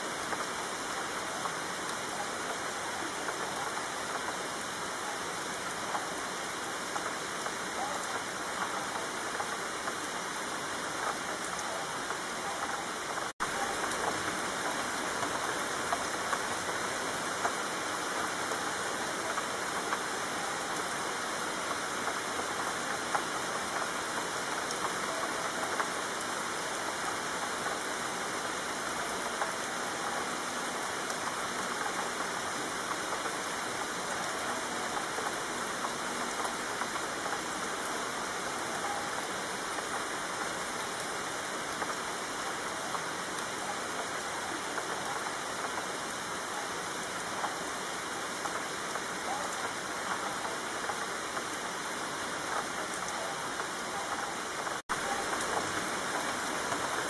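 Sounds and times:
rain hiss: 0.0 - 57.0
raindrop taps: 21.6 - 27.9.

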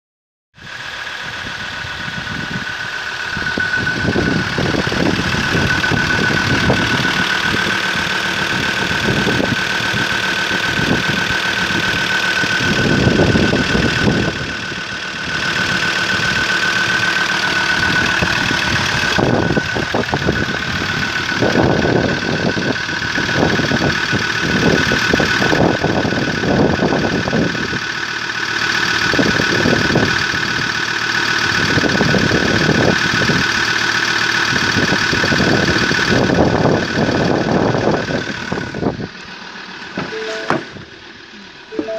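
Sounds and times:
high-pitched whine: 0.6 - 26.0, 40.0 - 41.9
diesel engine idling: 0.6 - 41.9.

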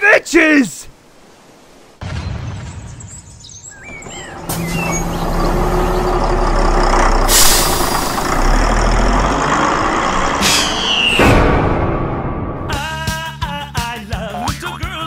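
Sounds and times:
bus engine running: 3.8 - 11.5
falling squeal: 3.9 - 6.3, 10.3 - 11.4
air brakes hissing: 7.2 - 8.4, 10.3 - 11.2.

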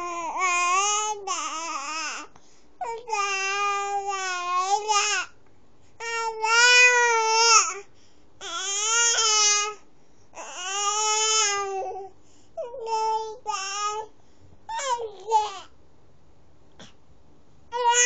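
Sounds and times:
baby wailing: 17.7 - 18.0.

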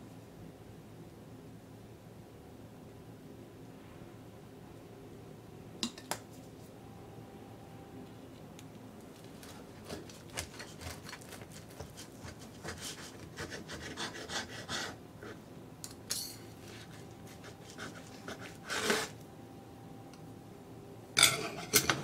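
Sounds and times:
knife scraping wooden tray: 9.4 - 14.4, 16.6 - 19.2
knife sawing through pancakes: 9.7 - 15.4, 16.6 - 19.2.

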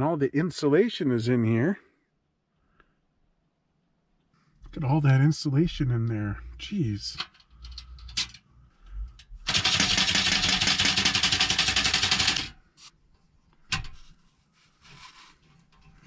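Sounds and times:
rapid mechanical clicking rattle: 9.2 - 12.6.

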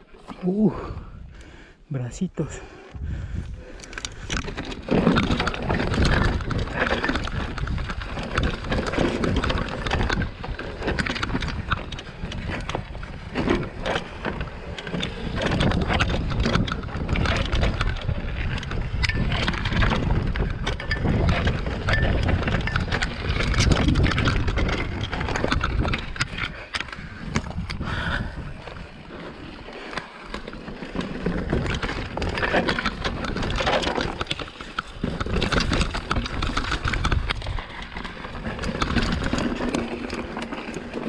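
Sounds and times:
bike tyres rolling over rock: 2.4 - 41.0
bike knocking and rattling: 2.9 - 41.0.

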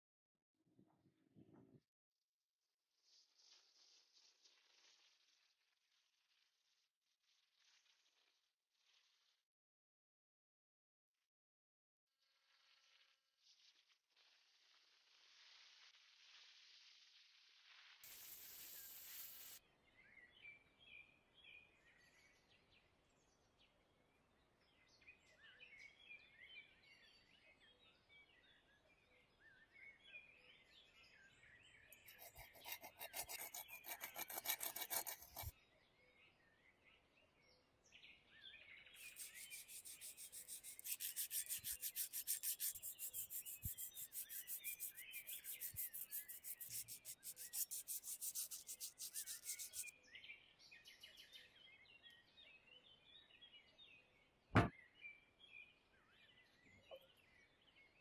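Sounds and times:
abrasive rubbing on metal: 18.1 - 19.6, 32.0 - 35.5, 39.0 - 49.9
birds chirping faintly: 29.3 - 35.7, 37.8 - 58.0.

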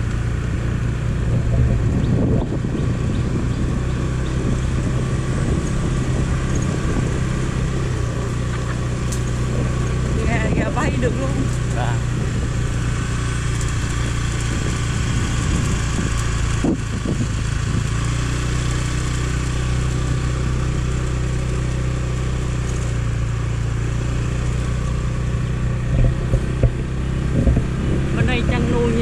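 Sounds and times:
motorbike engine cruising: 0.0 - 29.0
wind and road noise: 0.0 - 29.0.

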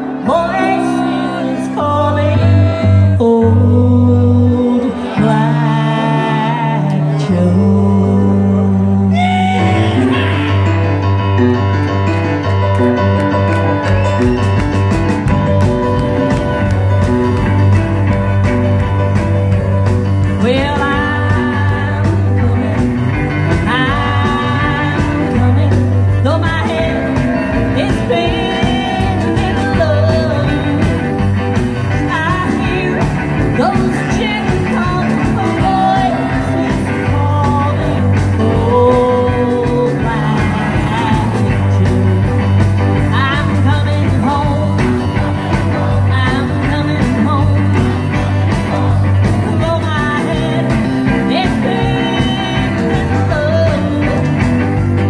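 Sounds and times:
live rockabilly band playing: 0.0 - 55.0
saxophone: 8.8 - 18.6.

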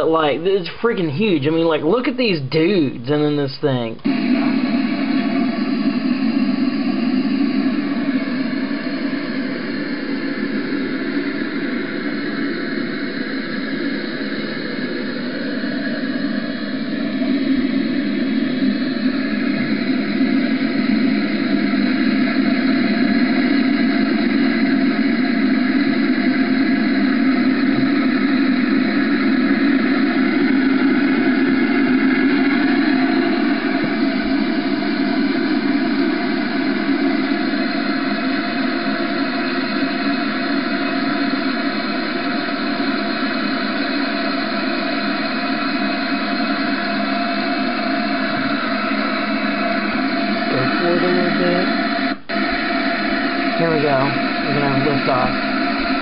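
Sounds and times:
model helicopter engine and rotor drone: 46.0 - 52.0, 53.4 - 56.0
model helicopter rotors running: 50.1 - 51.9, 53.6 - 56.0.

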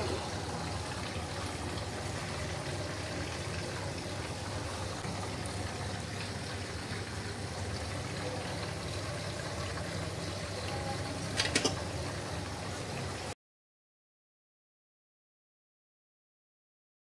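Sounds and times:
low hum with hiss: 0.0 - 13.4.

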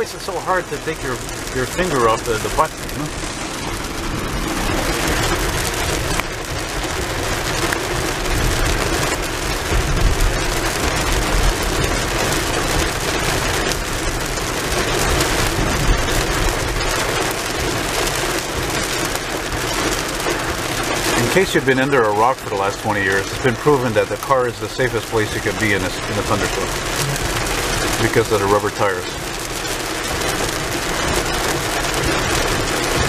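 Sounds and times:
rain on car roof: 0.0 - 33.0.

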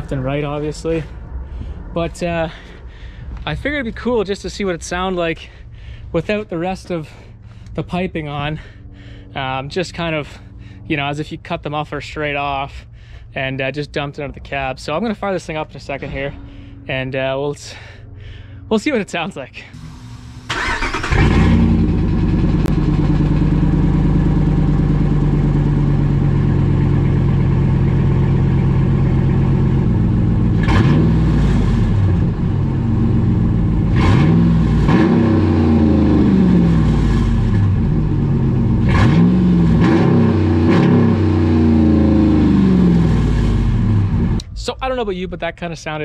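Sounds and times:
loud engine idling and revving: 19.8 - 44.5.

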